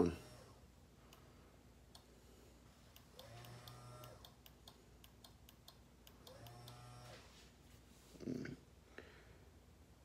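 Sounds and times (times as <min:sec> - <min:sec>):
faint rapid electrical clicking: 0:02.9 - 0:06.9
bilge pump humming: 0:03.0 - 0:04.6, 0:06.0 - 0:07.2.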